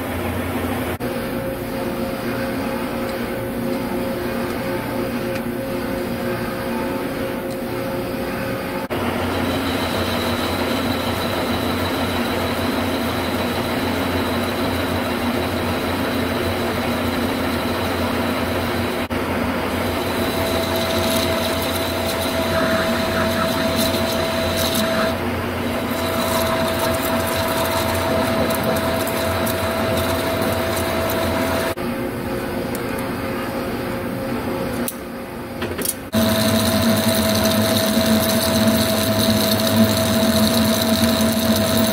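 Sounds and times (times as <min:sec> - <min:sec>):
metal lathe humming and whining: 0:00.0 - 0:31.8, 0:36.1 - 0:41.9
cutting tool hissing: 0:20.0 - 0:25.2.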